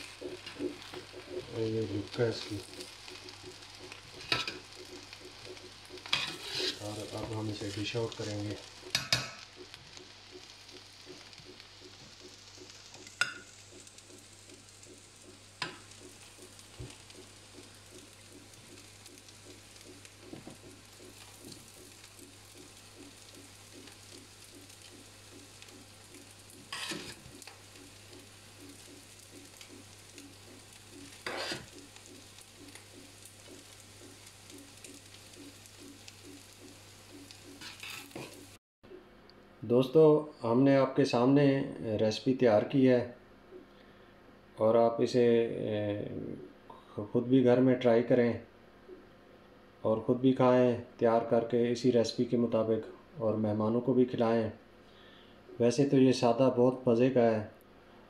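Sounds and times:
spoon scraping rice: 0.0 - 7.3, 26.5 - 27.8, 30.8 - 32.1.

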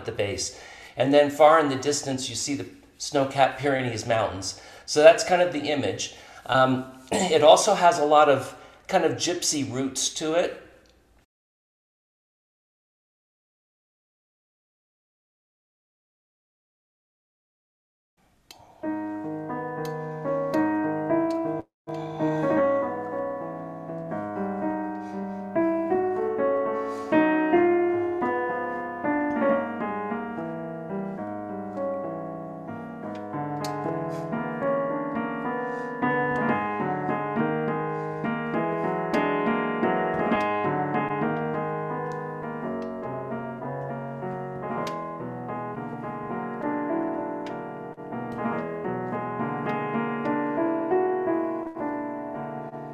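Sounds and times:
digital piano piece: 18.5 - 52.9.

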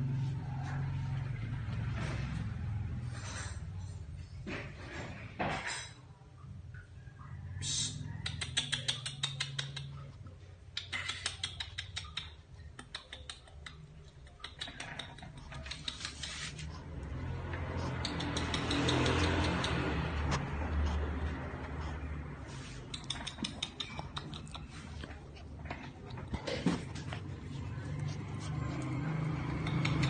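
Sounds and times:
dog toenails clicking on tiles: 8.2 - 10.1, 10.7 - 30.0
rustling: 15.6 - 17.8.

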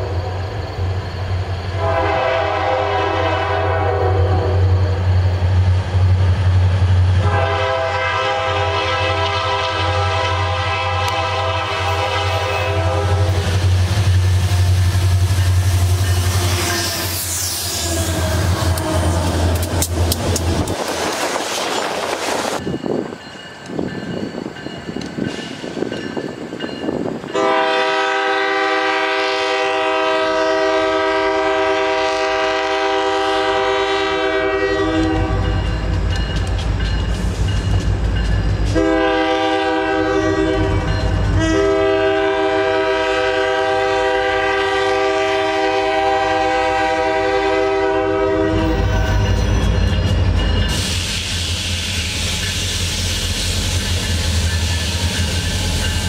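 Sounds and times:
train wheels rattling on rails: 0.0 - 56.0
locomotive air horn: 1.7 - 5.0, 7.2 - 13.6, 15.9 - 19.7, 27.3 - 35.6, 38.7 - 49.3.

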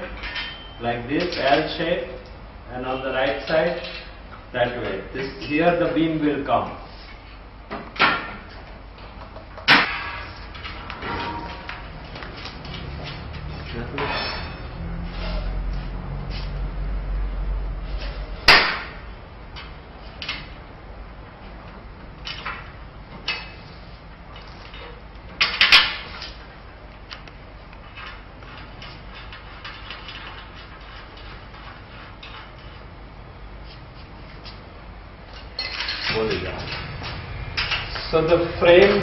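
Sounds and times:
metal knocks and clanks: 9.2 - 14.9.

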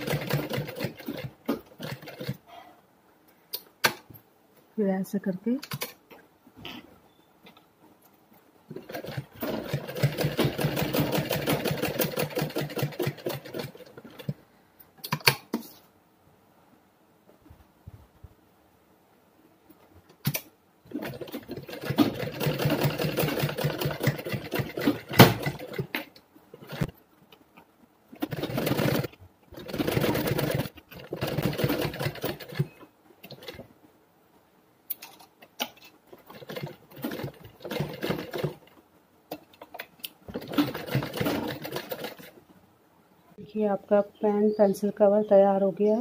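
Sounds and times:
sewing machine stitching: 0.0 - 2.4, 8.7 - 14.4, 20.9 - 27.0, 28.1 - 33.6, 35.1 - 42.4.

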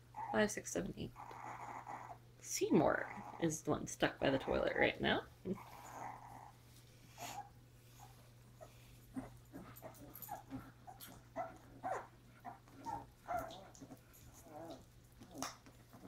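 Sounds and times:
puppies whimpering and squeaking: 0.1 - 0.5, 1.2 - 2.2, 3.0 - 3.4, 5.5 - 16.0.

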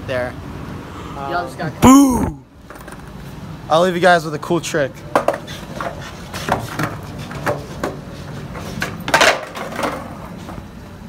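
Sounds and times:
skateboard clattering on concrete: 5.0 - 10.7.

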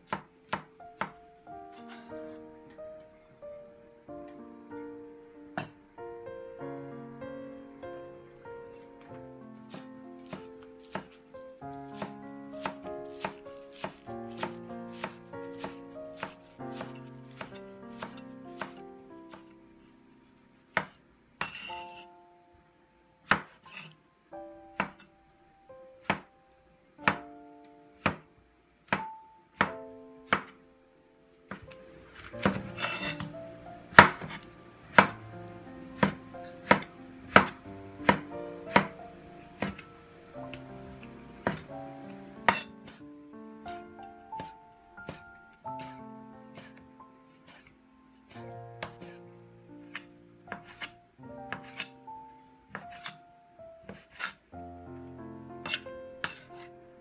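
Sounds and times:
background music: 0.0 - 57.0
cleaver chopping on wooden board: 9.7 - 11.1, 11.9 - 19.5, 20.8 - 21.7, 23.3 - 23.9, 31.5 - 33.3, 33.9 - 35.2, 36.0 - 39.0, 39.6 - 39.8, 41.4 - 41.7, 45.8 - 46.0, 49.9 - 50.9
cleaver knocking on cutting board: 41.4 - 41.7.

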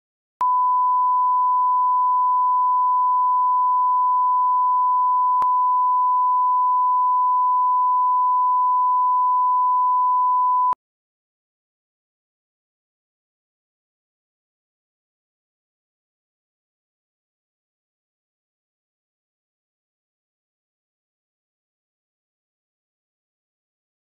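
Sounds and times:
sine reference tone: 0.4 - 10.8.

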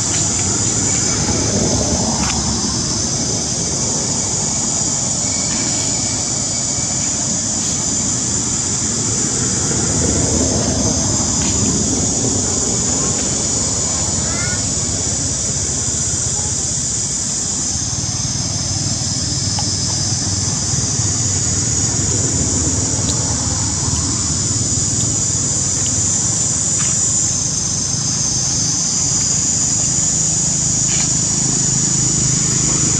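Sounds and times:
low rumble: 0.0 - 16.4
high hiss: 0.0 - 32.9.

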